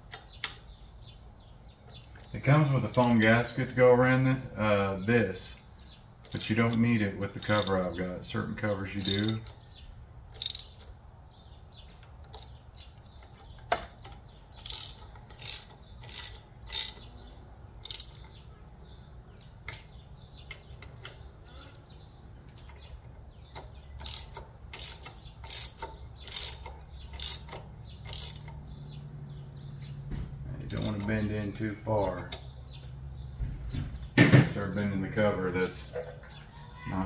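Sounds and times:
hand ratchet clicking: 2.9 - 3.3, 6.2 - 6.8, 7.4 - 7.8, 9.0 - 9.6, 10.3 - 11.0, 12.0 - 17.0, 17.8 - 18.3, 23.5 - 28.6, 30.7 - 31.1.

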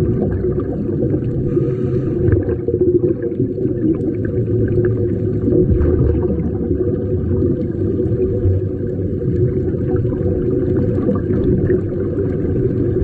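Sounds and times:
faint bubbling: 0.0 - 13.0
muffled underwater rumble: 0.0 - 13.0.

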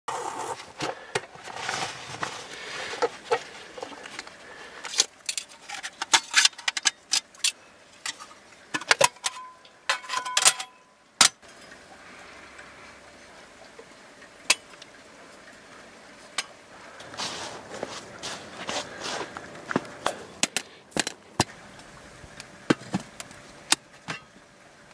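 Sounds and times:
metal stove panels clinking: 8.8 - 11.4.

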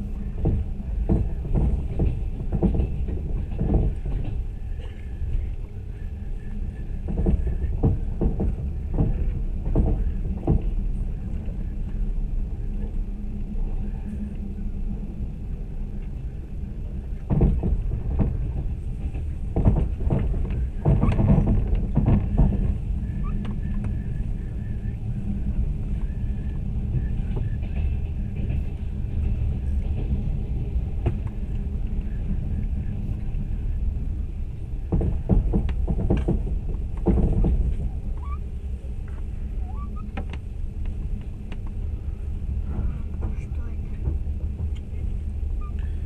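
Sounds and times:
train rumbling inside carriage: 0.0 - 46.0
knocks and clatters: 0.4 - 5.0, 7.0 - 11.6, 17.2 - 24.0, 26.9 - 32.1, 34.8 - 38.4.

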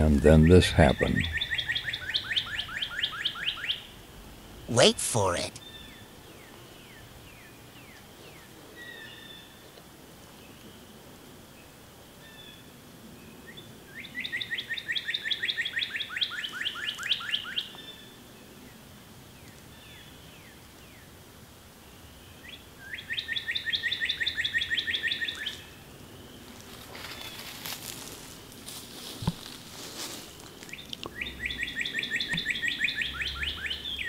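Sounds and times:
cardinal whistling song: 0.4 - 3.9, 22.9 - 25.5, 30.7 - 34.0
rustle: 5.6 - 34.0.

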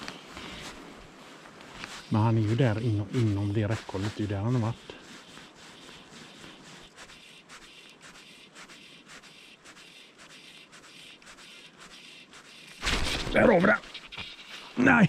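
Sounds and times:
fly line scraping through guides: 1.6 - 14.8.

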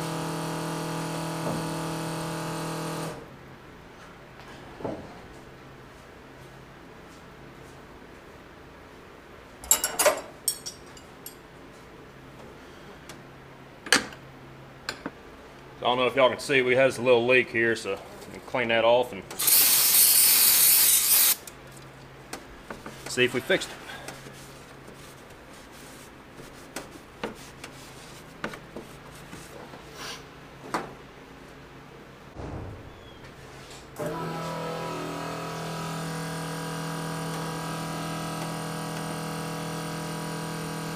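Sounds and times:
rag rubbing and wiping engine: 22.8 - 30.3.

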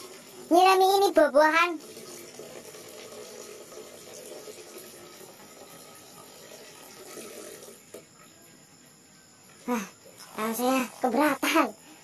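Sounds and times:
water pouring into watering can: 0.0 - 0.5, 1.6 - 8.1.

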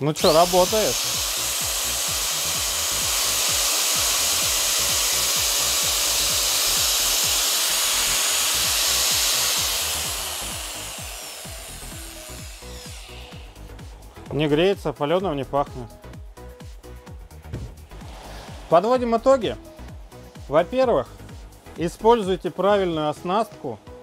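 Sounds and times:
angle grinder whining: 0.0 - 14.6.

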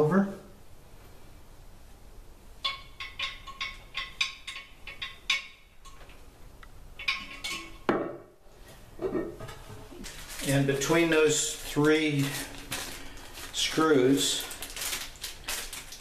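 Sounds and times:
porcelain clinking and scraping: 2.6 - 6.2, 7.0 - 7.9.

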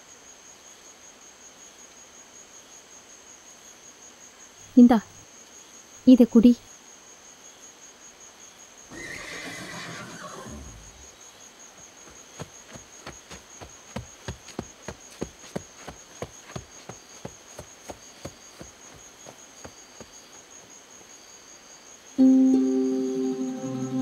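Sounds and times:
horse hoofbeats: 11.8 - 20.7
high-pitched insect drone: 22.1 - 24.0.

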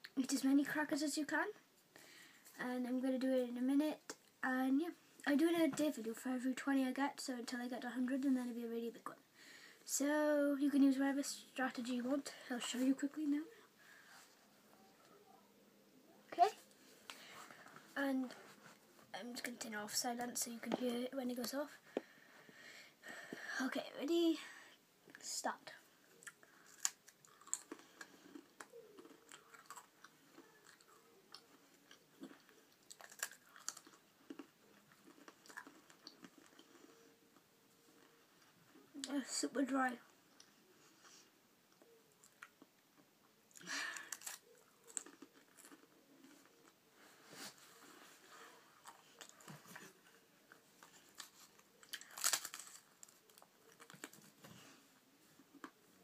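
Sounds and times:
person chewing crackers: 26.1 - 38.2, 41.8 - 42.8, 43.5 - 46.8, 48.8 - 54.3.

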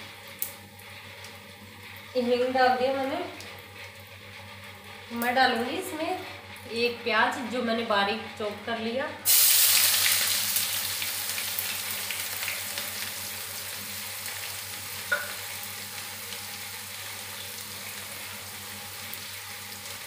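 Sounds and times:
onion sizzling in hot oil: 9.2 - 20.0.

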